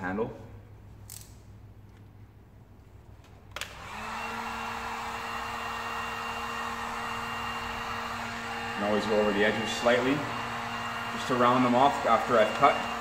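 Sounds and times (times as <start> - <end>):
heat gun fan whirring: 3.0 - 13.0.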